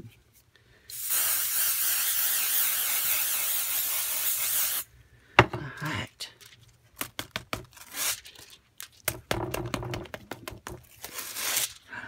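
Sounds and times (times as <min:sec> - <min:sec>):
metallic foil crinkling: 0:07.7 - 0:09.1, 0:10.8 - 0:11.9.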